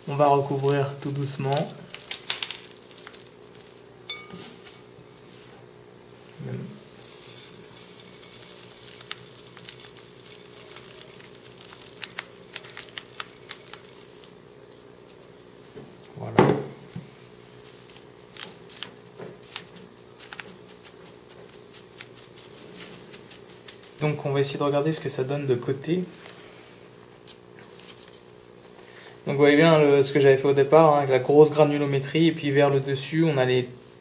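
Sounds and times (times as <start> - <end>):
grains pattering into plastic cup: 0.1 - 3.9, 7.0 - 15.4, 17.5 - 24.6.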